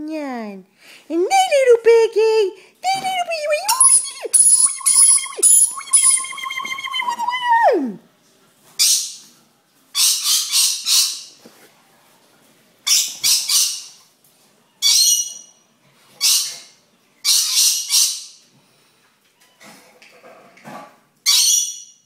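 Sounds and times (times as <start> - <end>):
parrot squawking: 3.6 - 7.6.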